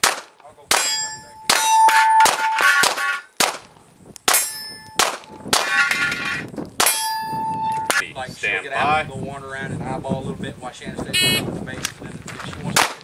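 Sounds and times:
pistol shots: 0:00.0 - 0:06.0, 0:12.8 - 0:13.0
steel plate clanging: 0:00.8 - 0:03.4, 0:04.3 - 0:08.0.

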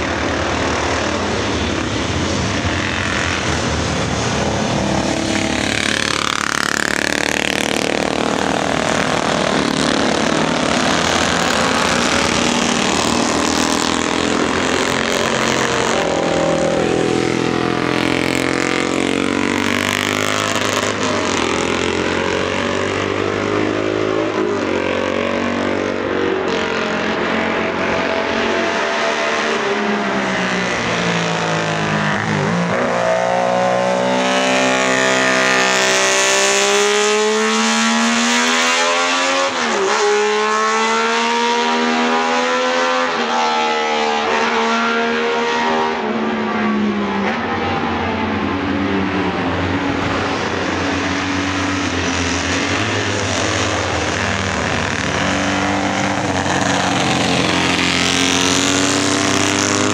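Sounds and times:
racing motorcycle engines revving: 0:00.0 - 0:59.9.

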